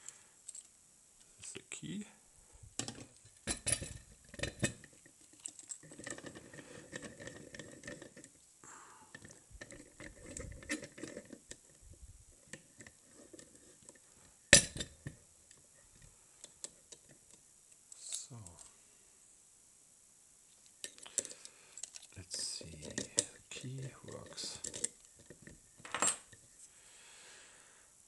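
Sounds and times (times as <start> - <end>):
metal clicks and scraping: 2.8 - 8.4, 9.1 - 11.8, 20.6 - 26.4.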